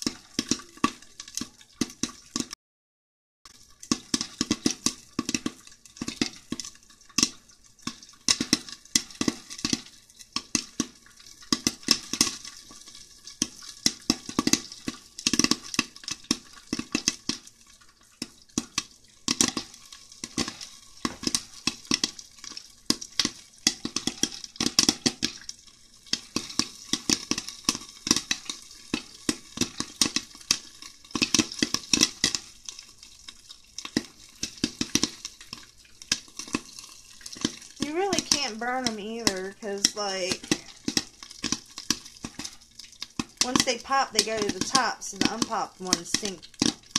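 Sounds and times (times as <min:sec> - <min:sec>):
popcorn popping in pan: 0:00.0 - 0:02.6, 0:03.5 - 0:46.9.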